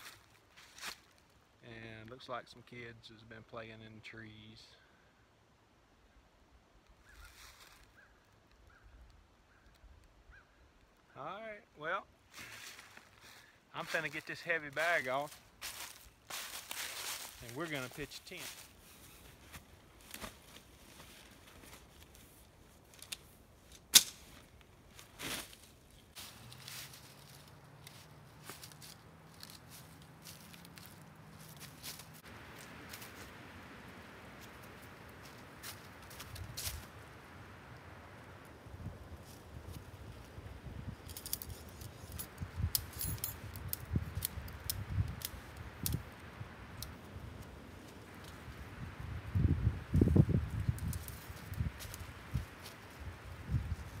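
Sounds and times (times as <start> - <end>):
tent fabric rustling: 14.8 - 23.2
tent pole sections clicking: 22.8 - 32.2, 41.0 - 48.4.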